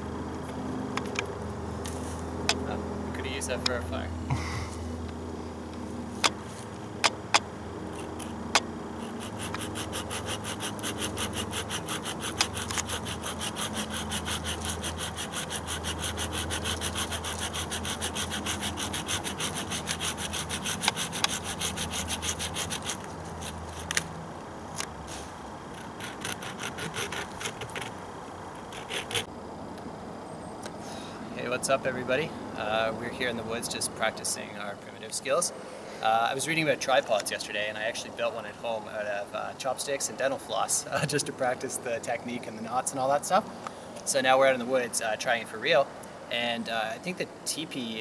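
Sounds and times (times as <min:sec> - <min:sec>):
hand saw cutting wood: 0:09.0 - 0:24.0, 0:25.8 - 0:28.0, 0:28.6 - 0:29.3.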